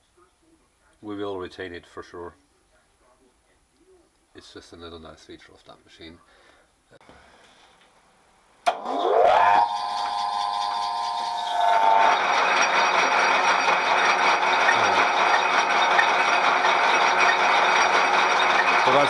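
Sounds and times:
lathe motor whine: 8.7s - 19.0s
rattling gear train: 9.6s - 19.0s.

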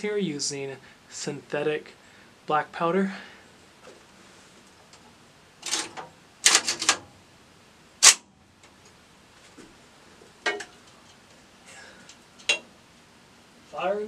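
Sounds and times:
loud sharp snap: 8.0s - 8.3s
shotgun handling clicks: 8.0s - 8.3s.

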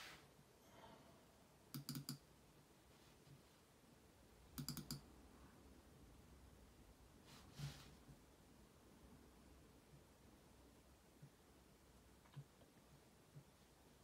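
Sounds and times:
computer mouse clicking: 1.7s - 2.3s, 4.5s - 5.1s.

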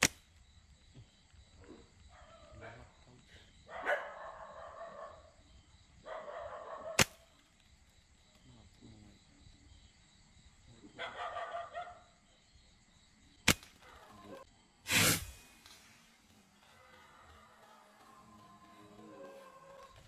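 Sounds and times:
slingshot snaps: 0.0s - 0.4s, 7.0s - 7.7s, 13.4s - 13.9s
dog barking: 1.6s - 3.0s, 3.6s - 5.4s, 6.0s - 7.1s, 10.9s - 12.2s, 13.8s - 14.5s.

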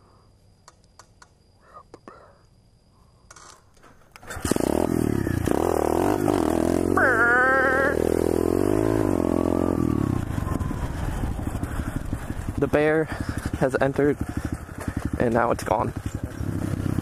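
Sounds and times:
pit bike engine revving: 4.2s - 17.0s.

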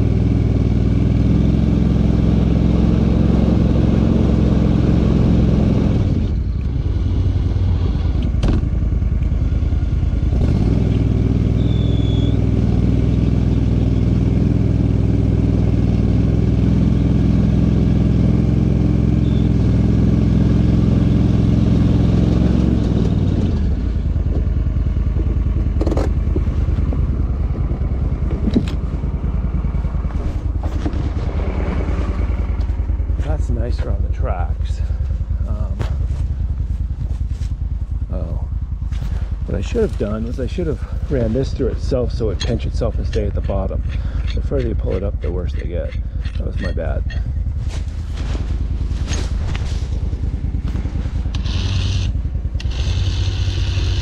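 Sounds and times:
vehicle engine running: 0.0s - 54.0s
sharp clicks and knocks: 25.1s - 27.0s, 28.2s - 28.8s, 42.2s - 47.3s.

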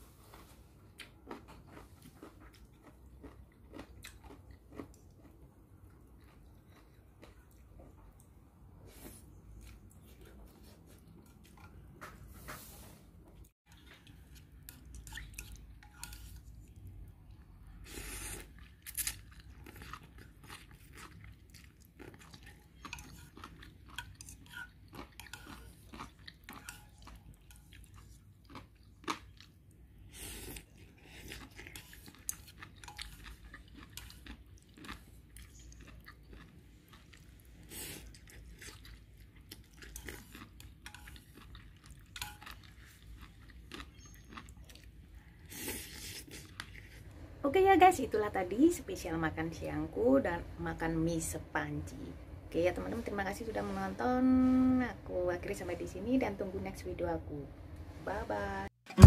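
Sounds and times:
person chewing and slurping: 0.2s - 12.0s, 13.7s - 47.1s.

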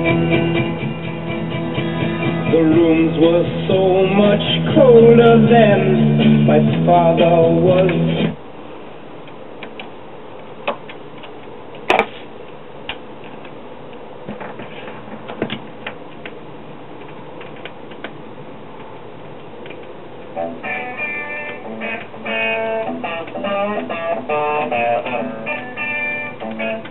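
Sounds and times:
guitar music: 0.0s - 8.4s, 20.4s - 26.9s
music with singing from speakers: 0.0s - 8.4s
record hiss: 0.0s - 26.9s
record changer clicks: 25.8s - 26.9s.

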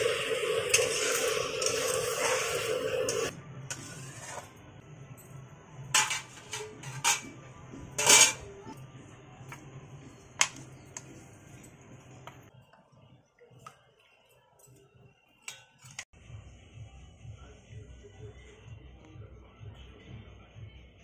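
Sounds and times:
spoon clinking against steel pots: 5.9s - 7.4s, 8.0s - 8.8s, 14.6s - 16.0s.

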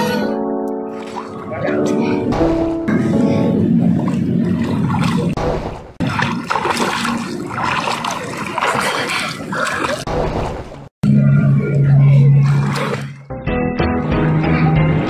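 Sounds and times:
pool water splashing: 0.9s - 10.9s, 12.4s - 13.3s.

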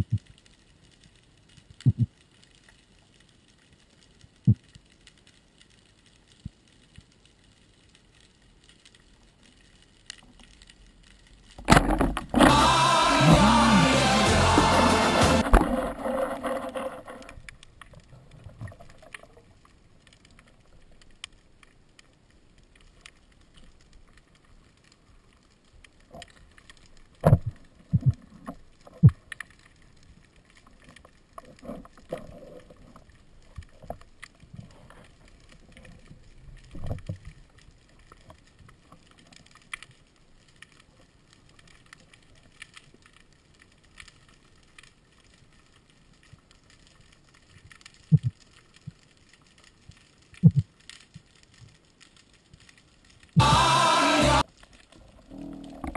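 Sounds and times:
faint underwater noise: 0.0s - 55.9s
background music: 12.4s - 15.5s, 53.4s - 54.4s.

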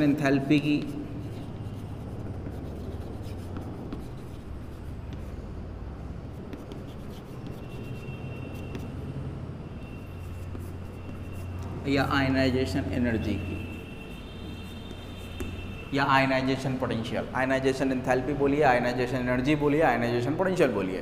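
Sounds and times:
chalk tapping: 0.0s - 5.4s, 6.3s - 9.0s, 10.0s - 11.7s, 14.6s - 15.7s
steady low hum: 0.0s - 12.9s
chalk scratching on blackboard: 0.5s - 5.4s, 6.3s - 9.0s, 9.8s - 11.7s, 13.3s - 15.7s.

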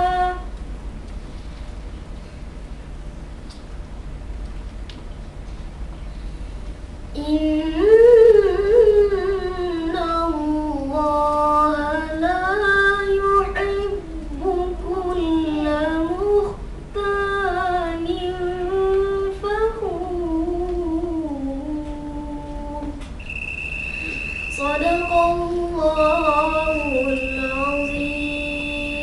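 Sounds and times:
boy chanting through a microphone: 0.0s - 0.5s, 7.1s - 23.0s, 24.5s - 29.0s.

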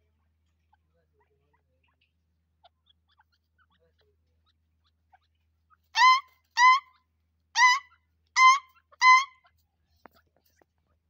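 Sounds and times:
francolin calling shrill notes: 6.0s - 6.9s, 7.6s - 9.4s.

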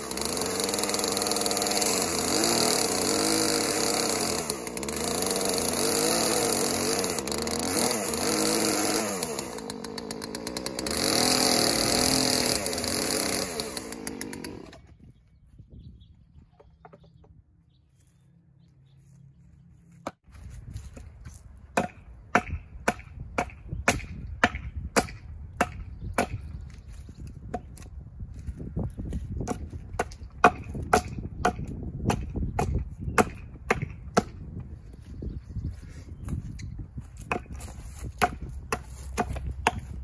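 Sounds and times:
hatchet chopping wood: 0.0s - 14.8s, 21.7s - 26.6s, 29.4s - 34.5s, 37.2s - 40.0s.

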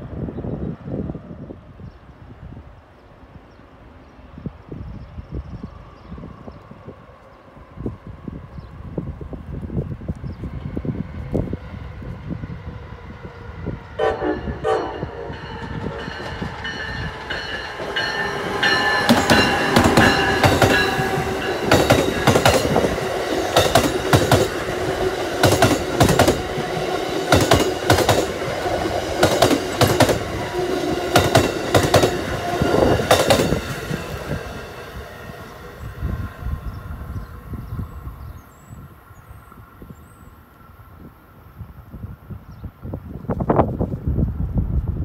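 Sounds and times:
steady train whine: 0.0s - 45.0s
train wheels clacking over joints: 15.5s - 30.3s, 30.9s - 33.8s.

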